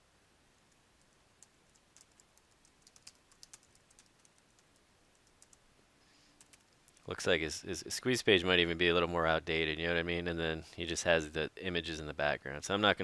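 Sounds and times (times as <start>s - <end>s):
faint keyboard typing: 0.7s - 5.6s, 6.3s - 7.1s.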